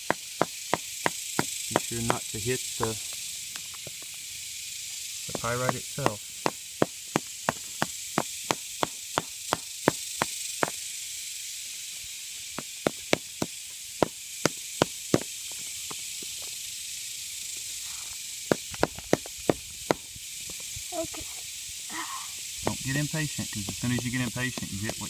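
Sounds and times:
hammer tapping stone: 0:00.0 - 0:02.2, 0:05.3 - 0:10.3, 0:23.5 - 0:25.0
steady high hiss: 0:00.0 - 0:25.0.

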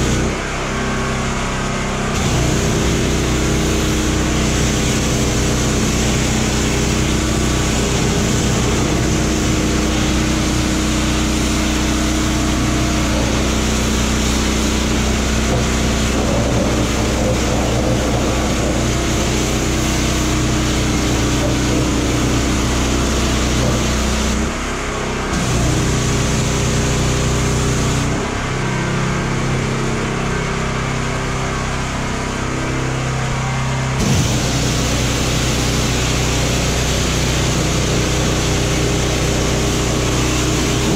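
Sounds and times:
pressure washer motor hum: 0:00.0 - 0:40.9
high-pressure spray hissing: 0:02.1 - 0:24.5, 0:34.0 - 0:40.9.

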